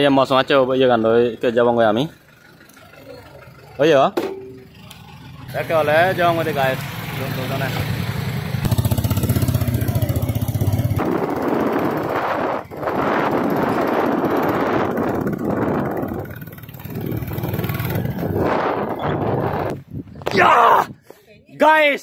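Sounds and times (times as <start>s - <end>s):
vehicle engine idling: 0.1s - 11.9s
loud steady rushing noise: 8.5s - 18.9s.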